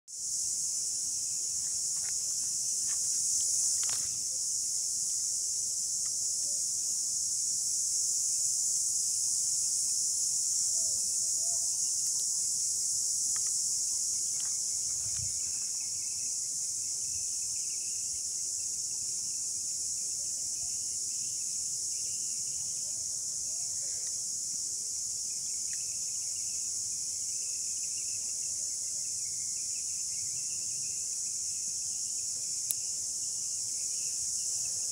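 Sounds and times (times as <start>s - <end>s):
insects chirping: 0.1s - 34.9s
faint ticks: 32.6s - 32.8s.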